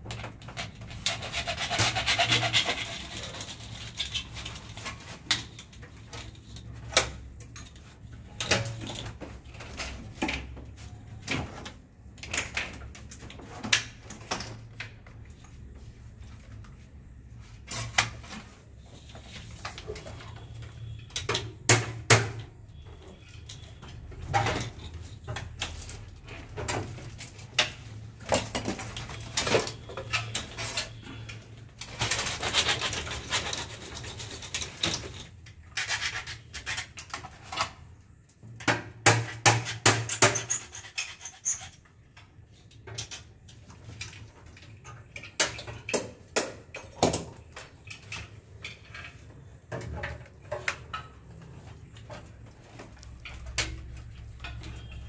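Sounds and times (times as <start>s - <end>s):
hand tools clicking and tapping: 45.1s - 55.0s.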